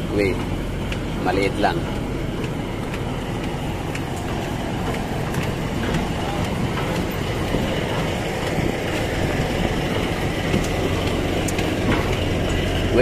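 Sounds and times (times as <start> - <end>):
ferry engines droning: 0.0 - 13.0
footsteps on metal deck: 0.0 - 13.0.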